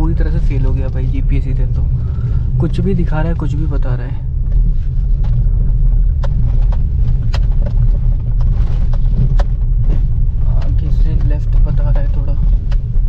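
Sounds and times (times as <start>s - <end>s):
car engine and tyres rumbling: 0.0s - 13.0s
car knocking over bumps: 4.2s - 13.0s.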